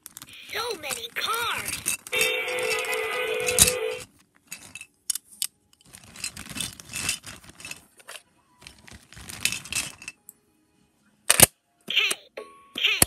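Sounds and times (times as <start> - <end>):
objects clicking and scraping: 0.0 - 10.4.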